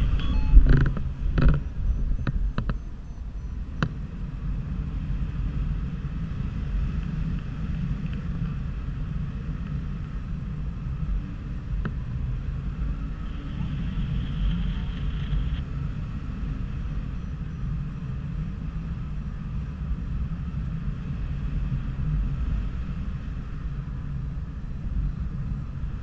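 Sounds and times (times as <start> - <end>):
sharp clicks and creaks: 0.0 - 4.0
wind rushing over microphone: 0.0 - 26.0.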